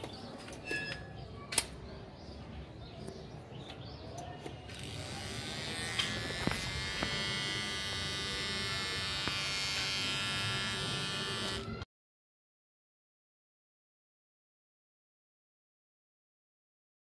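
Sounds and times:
hair trimmer buzzing: 4.7 - 11.9.

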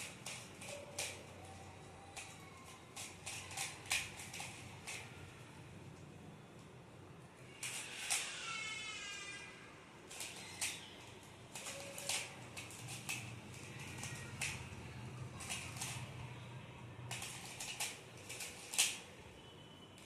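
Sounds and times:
plastic puzzle clicking: 0.0 - 5.2, 10.1 - 16.3, 17.0 - 19.1.

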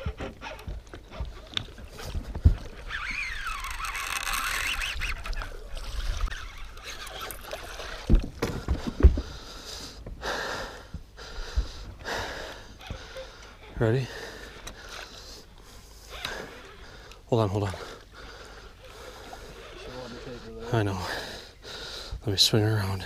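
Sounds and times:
fishing rod handling noise: 0.0 - 9.3
wavering high squeal: 2.9 - 5.6.

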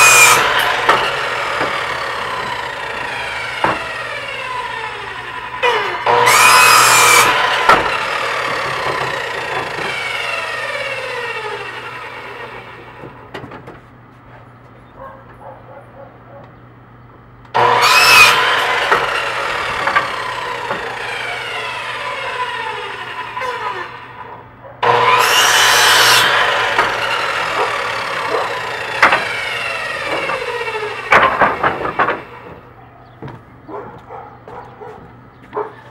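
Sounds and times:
miter saw cutting wood: 0.0 - 13.3, 17.5 - 32.8.

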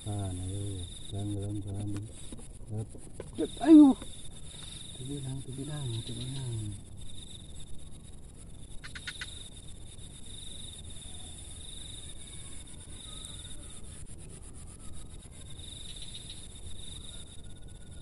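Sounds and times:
insects trilling: 0.0 - 18.0
low outdoor rumble: 0.0 - 18.0
sharp clicks: 8.8 - 9.3.

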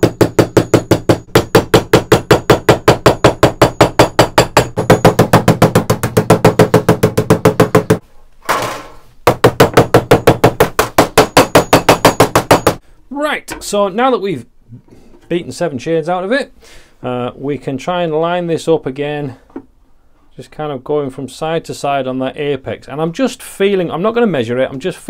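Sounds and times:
hammer beating copper sheet: 0.0 - 12.8.

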